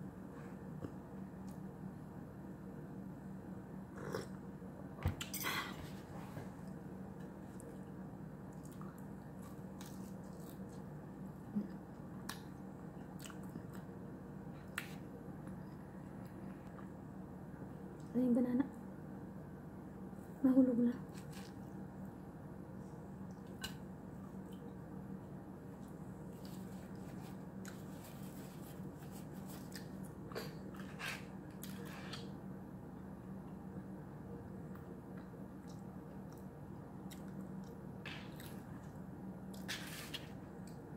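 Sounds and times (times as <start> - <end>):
steady low hum: 0.0 - 40.9
person chewing: 8.5 - 10.9, 11.6 - 13.9.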